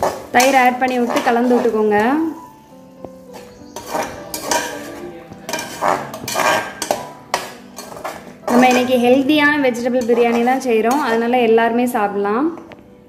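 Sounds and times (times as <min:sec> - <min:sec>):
metal spoon scraping a pot: 0:00.0 - 0:02.6, 0:03.2 - 0:11.3.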